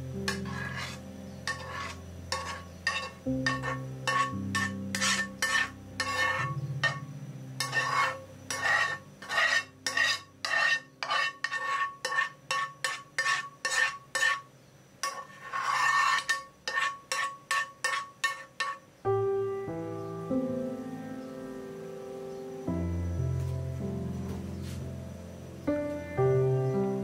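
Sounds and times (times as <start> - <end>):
ladle scraping ceramic pot: 0.3 - 18.9.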